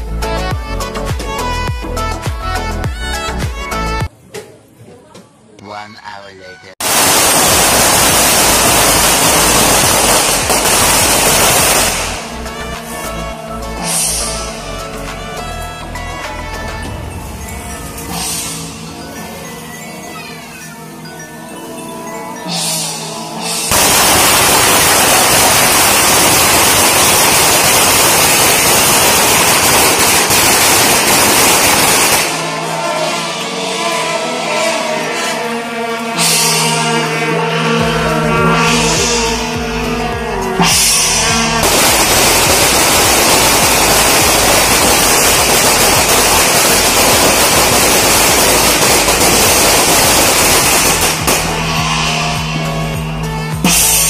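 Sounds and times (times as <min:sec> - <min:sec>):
firecrackers rapid bangs: 0:06.8 - 0:13.1, 0:23.7 - 0:32.8, 0:41.6 - 0:52.2.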